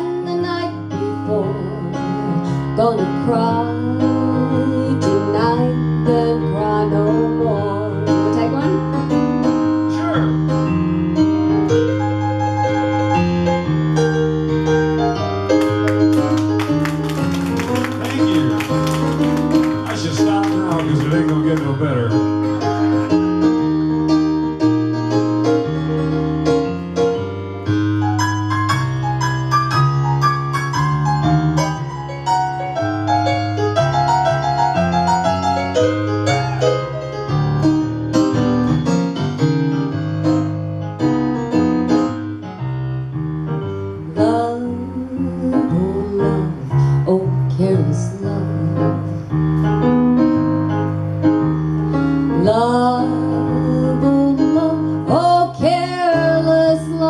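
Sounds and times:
woman singing: 0.0 - 9.0, 44.1 - 49.1, 52.4 - 57.0
blues piano: 0.0 - 57.0.

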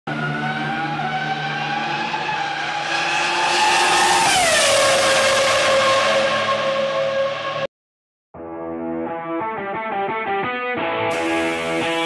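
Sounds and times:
racing car engine revving: 0.1 - 7.7.

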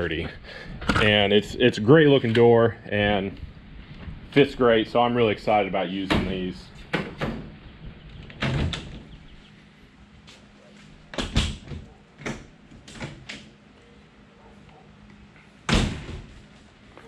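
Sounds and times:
metal door shutting clunk: 6.1 - 7.6.

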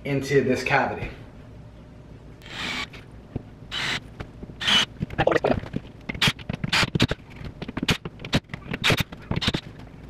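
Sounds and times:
cordless drill driving screws: 2.4 - 2.9, 3.7 - 4.0.

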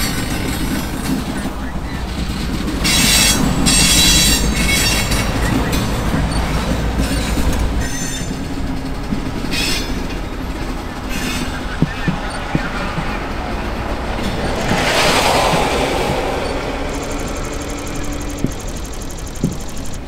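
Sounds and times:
freight train rumbling: 0.0 - 20.0
road traffic passing: 0.0 - 20.0
train wheels squealing: 0.0 - 20.0.

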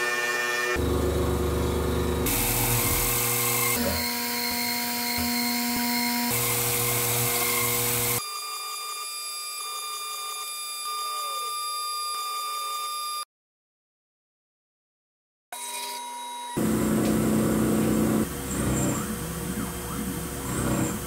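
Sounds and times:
milling machine cutting metal: 0.0 - 13.1, 15.6 - 21.0.

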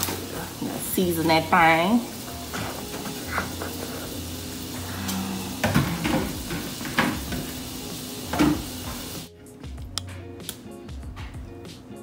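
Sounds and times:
butter sizzling in skillet: 0.0 - 9.3
kitchen knocks and clatters: 5.6 - 7.6, 8.3 - 9.0.

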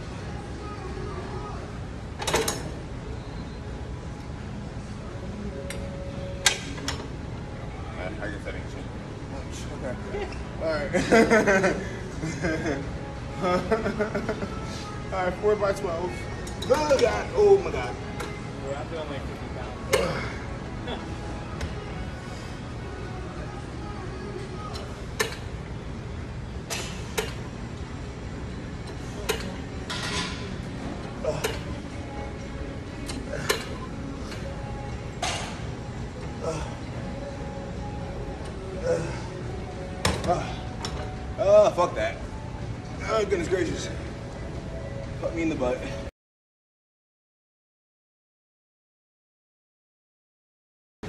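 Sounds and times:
gym background noise: 0.0 - 46.1
sharp metal clicks of gym machine: 25.2 - 25.4, 26.7 - 27.5.

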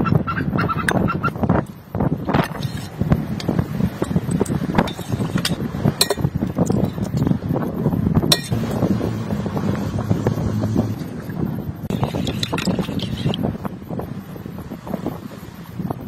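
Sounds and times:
wind rumbling on microphone: 0.0 - 16.0
metal spoon scraping in bowl: 2.3 - 7.3, 8.3 - 8.9, 11.9 - 13.5.

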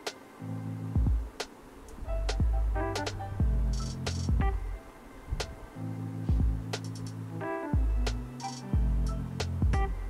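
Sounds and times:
deep kick drum: 1.0 - 1.3, 3.4 - 4.6, 6.3 - 6.7, 7.8 - 8.2, 8.8 - 10.0
synth bass chords: 2.1 - 4.9, 5.6 - 10.0.

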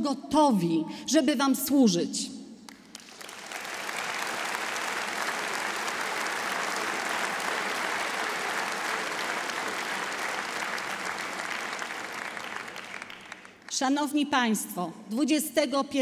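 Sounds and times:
large audience applauding: 2.7 - 13.8.

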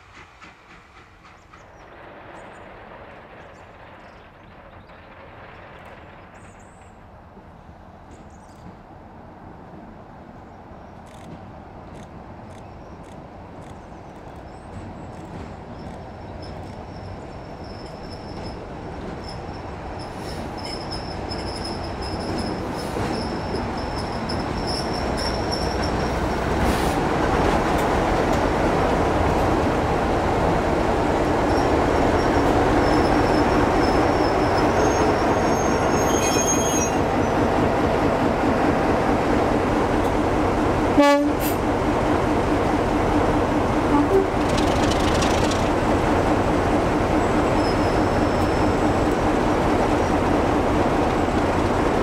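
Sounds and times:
diesel locomotive engine: 0.0 - 52.0
train coaches rolling on track: 0.0 - 52.0.

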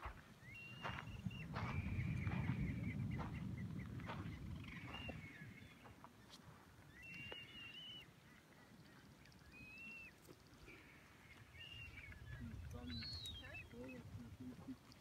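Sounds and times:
wind rumble on microphone: 0.0 - 6.1, 11.5 - 15.0
young seabirds calling: 0.4 - 14.7.

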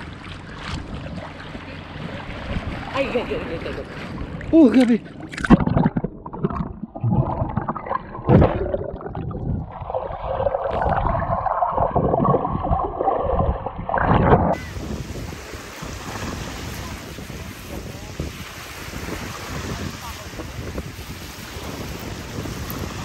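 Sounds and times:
underwater gurgling and bubbling: 4.1 - 23.0
wind on microphone: 5.4 - 23.0
small waves washing on sand: 14.5 - 23.0.

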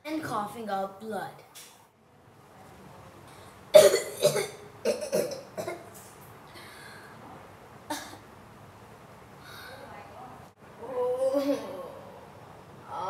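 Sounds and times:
boy coughing: 3.7 - 5.9, 7.9 - 8.2.

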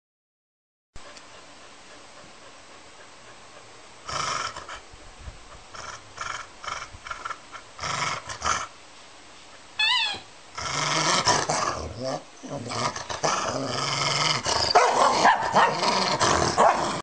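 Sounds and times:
dog growling and snarling: 4.0 - 4.8, 5.6 - 8.8, 10.5 - 17.0
quick high calls: 9.8 - 10.3.

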